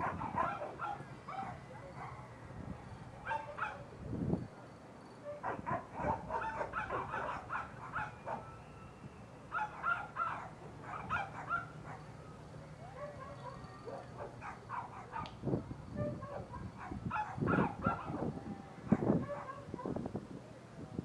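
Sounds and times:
dogs barking and yipping: 0.0 - 2.4, 3.2 - 3.8, 5.2 - 8.6, 9.5 - 12.2, 12.9 - 15.3, 16.0 - 18.3, 18.9 - 20.0.

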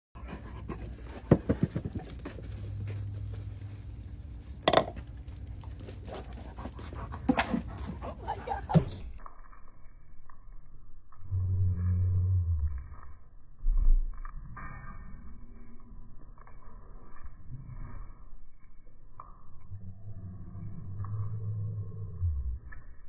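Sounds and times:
dog panting: 5.8 - 8.9.

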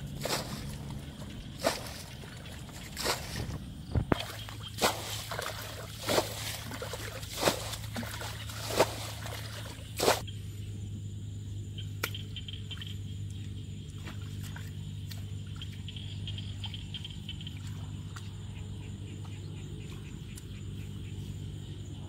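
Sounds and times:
water splashing from bucket: 0.0 - 10.2
steady low hum: 0.0 - 22.0.

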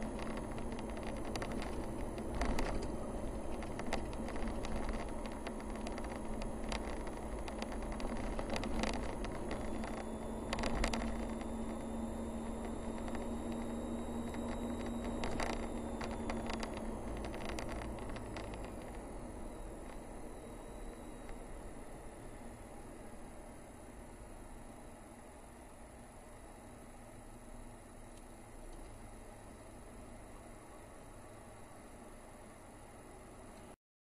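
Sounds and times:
sharp clicks and knocks: 0.0 - 2.9, 3.5 - 11.9, 12.5 - 19.0
car engine and road noise: 0.0 - 33.8
engine hum: 0.0 - 33.8.

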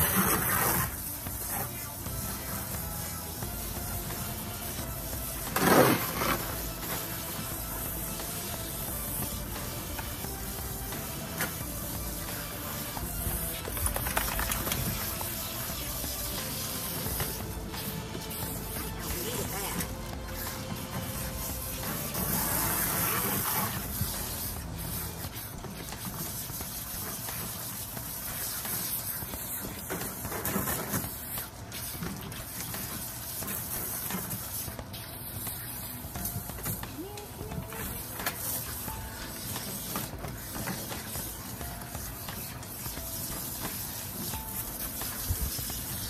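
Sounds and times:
hose nozzle spraying water: 0.0 - 46.0.

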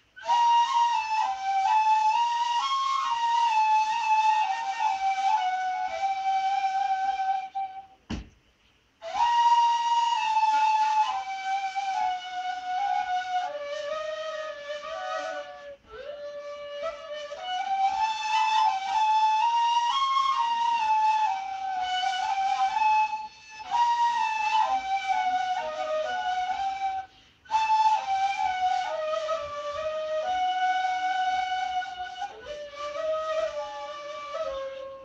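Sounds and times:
end-blown flutes playing melody: 0.0 - 8.3, 9.0 - 35.0.

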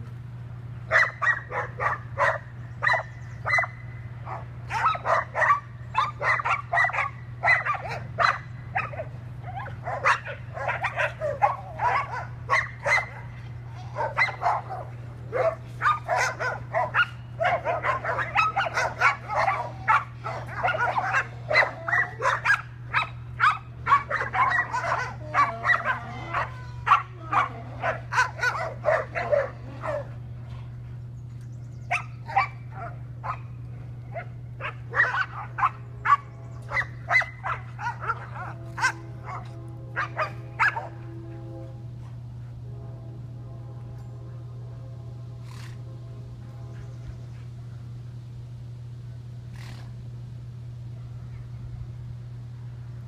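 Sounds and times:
dogs barking excitedly: 0.7 - 41.1.

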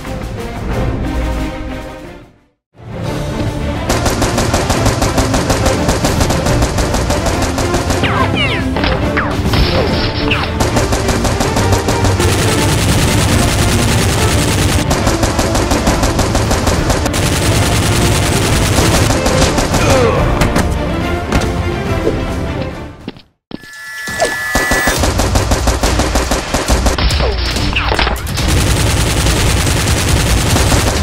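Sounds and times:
background music: 0.0 - 23.3
rapid automatic gunfire: 3.9 - 8.4, 10.6 - 20.0, 24.8 - 27.1, 28.2 - 31.0.

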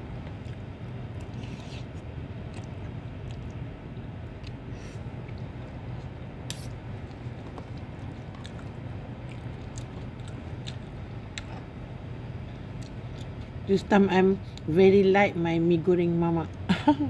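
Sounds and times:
low background hum: 0.0 - 17.0
person chewing: 0.3 - 11.7.

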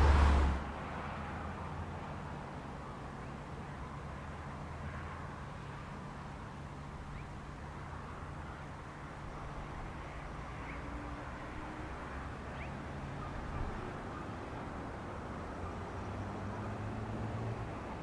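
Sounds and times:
diesel locomotives idling: 0.0 - 0.6.

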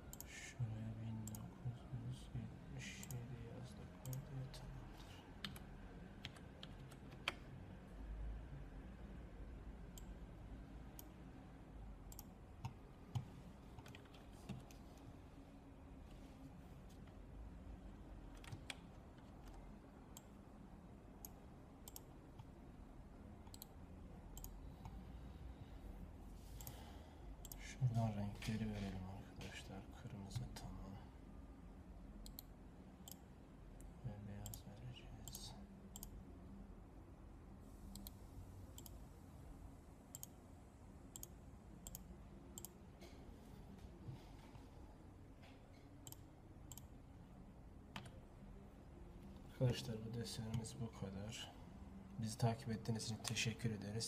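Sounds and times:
faint low hum: 0.0 - 54.0
computer mouse clicking: 0.1 - 0.3, 1.2 - 1.5, 3.0 - 3.3, 4.0 - 4.3, 5.4 - 7.5, 12.1 - 14.8, 18.3 - 20.3, 21.2 - 22.5, 23.5 - 25.0, 26.6 - 26.8, 32.2 - 33.2, 35.2 - 36.2, 37.9 - 38.2, 38.8 - 39.0, 40.1 - 40.4, 41.1 - 43.2, 46.0 - 46.9, 47.9 - 48.2.

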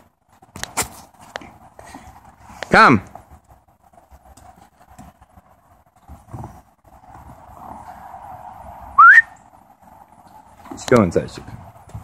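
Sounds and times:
person whistling: 9.0 - 9.4.

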